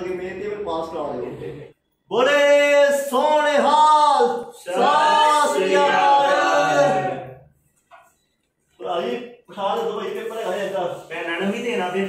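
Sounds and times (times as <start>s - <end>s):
several voices singing: 4.6s - 7.4s.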